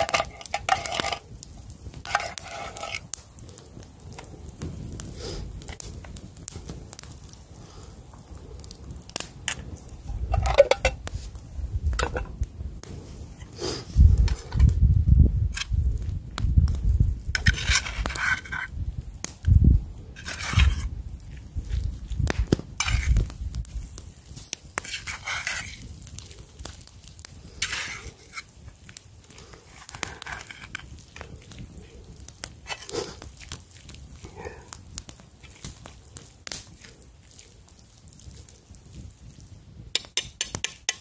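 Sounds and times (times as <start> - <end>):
metal spoon scraping a pan: 0.0 - 1.2, 2.0 - 3.1, 10.1 - 11.0, 17.3 - 18.7, 20.2 - 20.9, 22.8 - 23.2, 24.8 - 25.8, 27.6 - 28.5, 29.7 - 30.8, 32.6 - 33.2
campfire crackling: 0.0 - 41.0.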